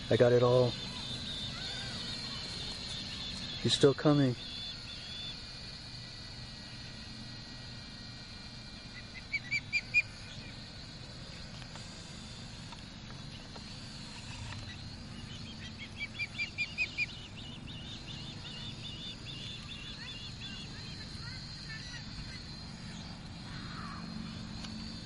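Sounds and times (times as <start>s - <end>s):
bird whistled chirps: 0.1s - 5.4s, 8.9s - 10.6s, 14.2s - 23.7s.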